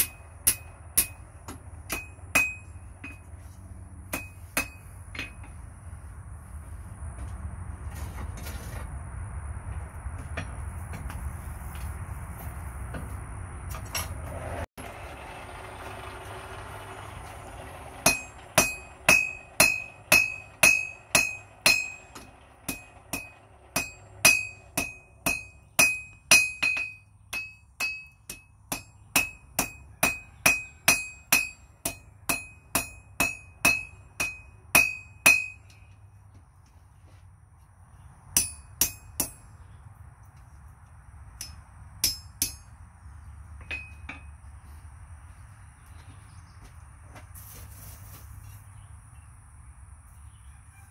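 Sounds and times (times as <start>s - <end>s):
hammer ringing on anvil: 0.0s - 3.3s, 4.1s - 5.5s, 18.0s - 35.8s, 38.4s - 39.5s, 41.4s - 42.7s, 43.6s - 44.3s.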